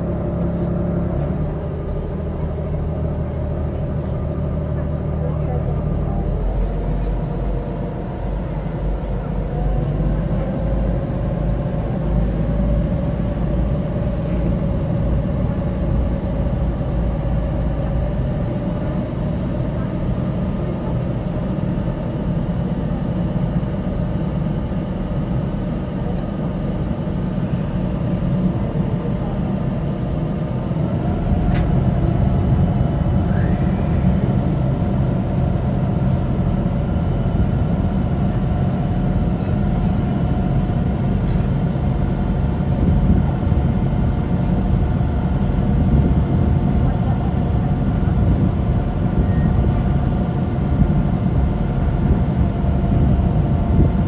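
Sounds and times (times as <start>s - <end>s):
ferry diesel engines droning: 0.0s - 54.0s.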